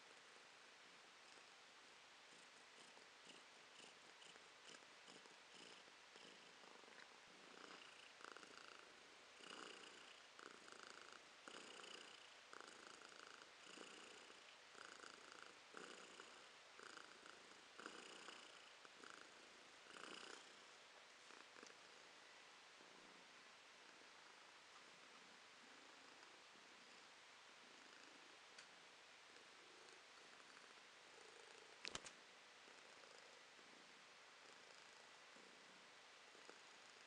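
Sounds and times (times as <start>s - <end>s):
cat purring: 0.0s - 28.6s, 29.2s - 37.0s.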